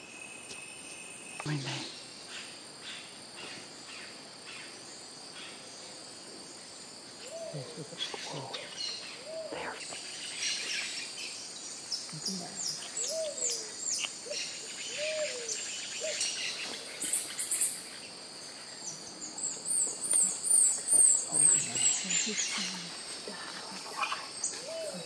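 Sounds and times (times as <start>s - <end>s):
insects droning: 0.0s - 25.0s
birds calling: 7.2s - 25.0s.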